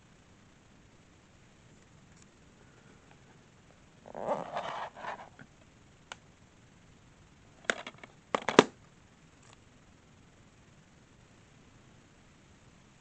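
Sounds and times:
rustling brush on plastic case: 0:04.2 - 0:05.4.

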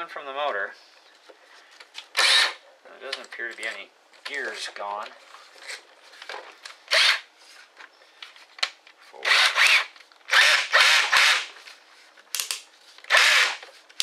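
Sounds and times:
cordless drill motor spinning: 0:02.2 - 0:02.6, 0:06.9 - 0:07.2, 0:09.2 - 0:11.5, 0:13.1 - 0:13.6.

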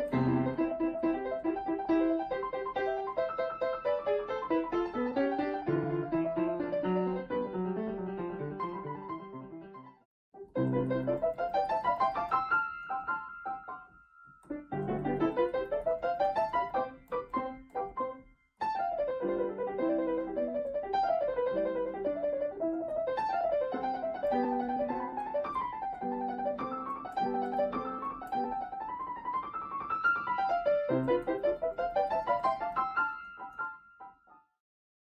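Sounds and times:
piano music: 0:00.0 - 0:34.4.

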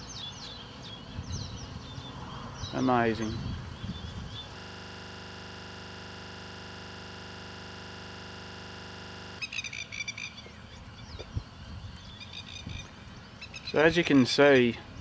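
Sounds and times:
birds chirping: 0:00.0 - 0:05.5, 0:09.3 - 0:15.0
looping audio glitch buzz: 0:01.3 - 0:10.4.

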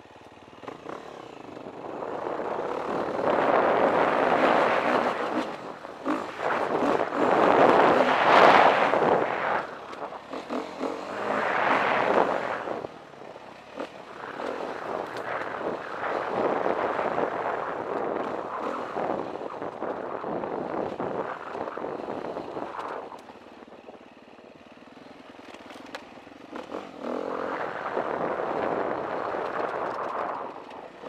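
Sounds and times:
dirt bike engine revving: 0:00.6 - 0:19.4, 0:26.4 - 0:30.5
wind on microphone: 0:01.7 - 0:13.4, 0:14.1 - 0:23.9, 0:26.6 - 0:31.0.

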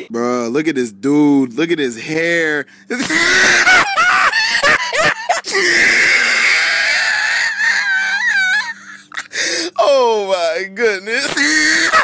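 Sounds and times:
man laughing wheezily: 0:02.9 - 0:09.8, 0:11.3 - 0:12.0.

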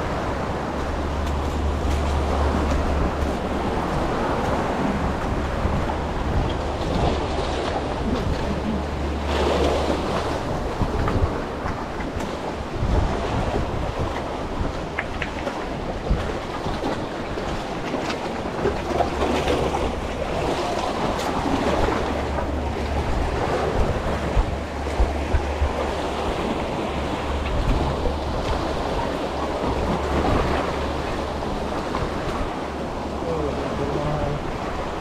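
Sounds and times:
low rumble: 0:00.0 - 0:35.0
sea water washing: 0:00.0 - 0:35.0
wind buffeting microphone: 0:00.0 - 0:35.0.

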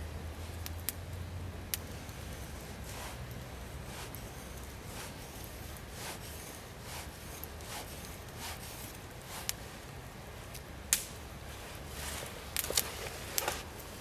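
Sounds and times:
knife scraping wooden stick: 0:01.8 - 0:09.6.

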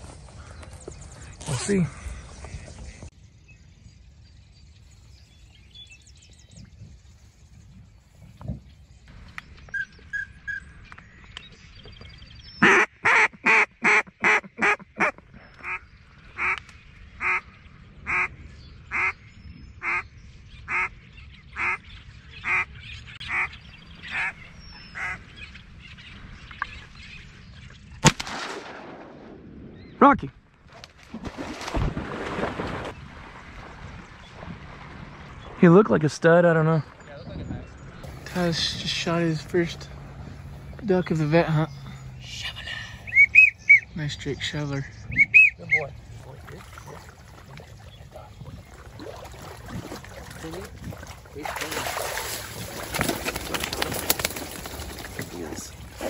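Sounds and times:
duck quacking: 0:12.6 - 0:15.8
shotgun shot: 0:28.0 - 0:29.5.

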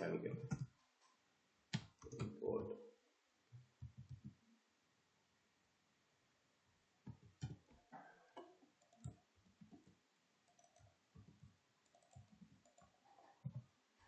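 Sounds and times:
typing on computer keyboard: 0:08.4 - 0:13.6.

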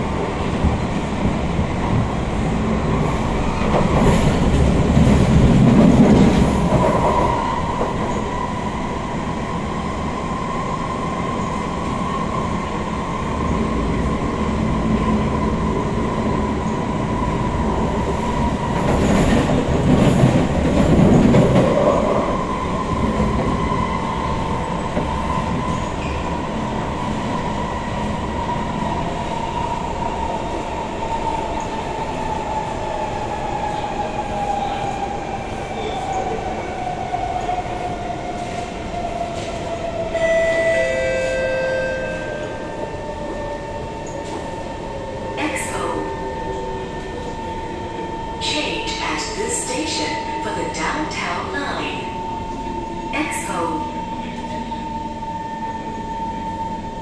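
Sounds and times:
rumble of wheels on rail: 0:00.0 - 0:57.0.

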